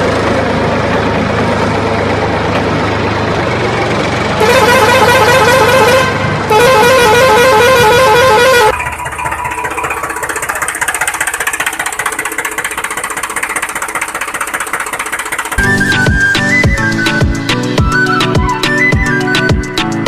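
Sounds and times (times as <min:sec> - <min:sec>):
fast-pulsing engine running: 0:00.0 - 0:20.0
warbling vehicle horn: 0:04.4 - 0:10.3.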